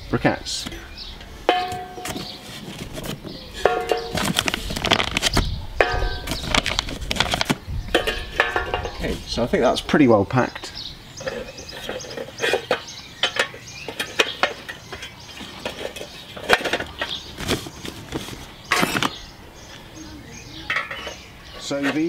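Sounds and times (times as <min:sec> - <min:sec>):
metal grates clinking: 0:01.5 - 0:02.6, 0:03.6 - 0:05.0, 0:05.8 - 0:09.3.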